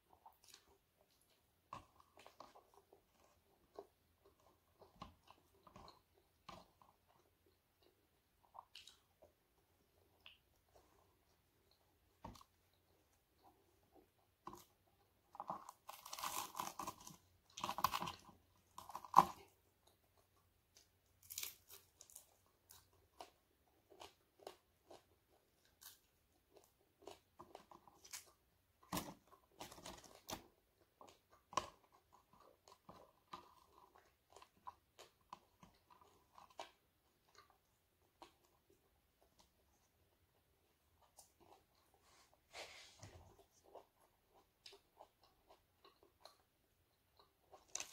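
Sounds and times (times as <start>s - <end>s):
chewing and crunching fried fish: 0.0s - 47.9s
small crackles of tearing fish: 15.4s - 19.5s, 20.8s - 22.8s.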